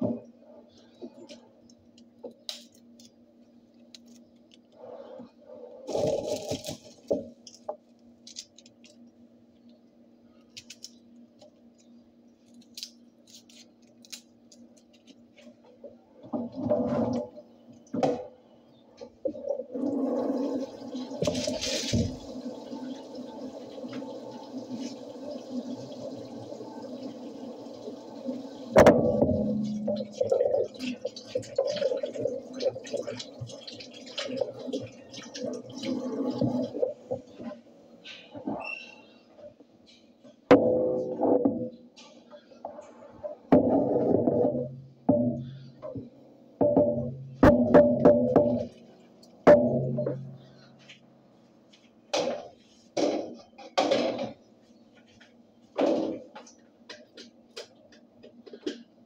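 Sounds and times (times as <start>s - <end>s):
steady low hum: 0.0s - 33.3s.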